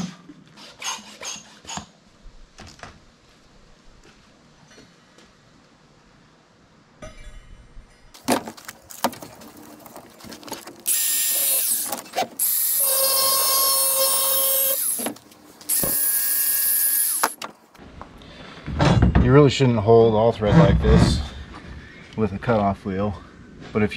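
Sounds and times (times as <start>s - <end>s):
angle grinder cutting metal: 10.9s - 17.4s.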